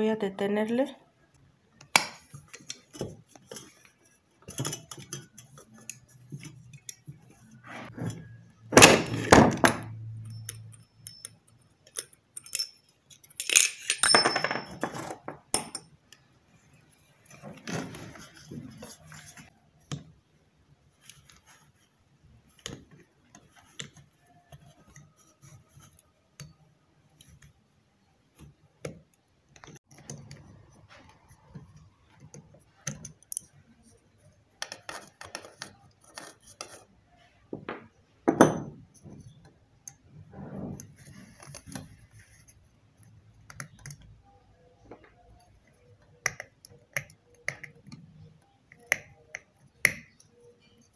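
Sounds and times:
metal parts clinking and scraping: 8.8 - 15.9.

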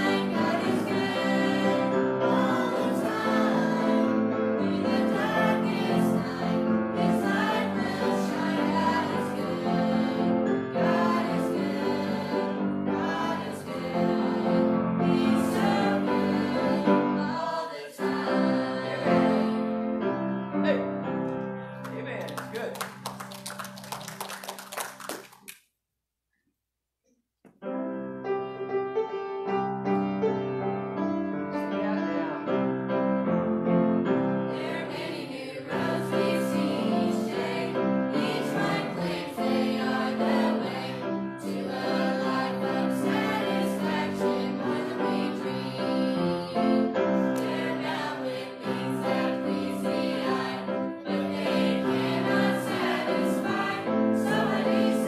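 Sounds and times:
young singers singing a hymn: 0.0 - 20.3, 34.2 - 55.0
piano accompaniment: 0.0 - 25.0, 27.5 - 55.0.

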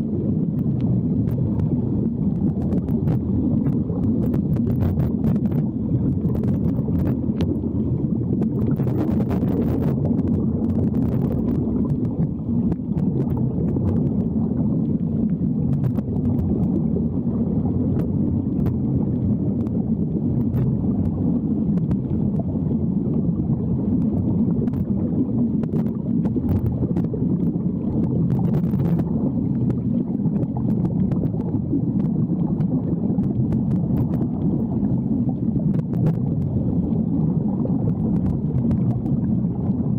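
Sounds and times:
underwater air bubbles rushing: 0.0 - 39.9.

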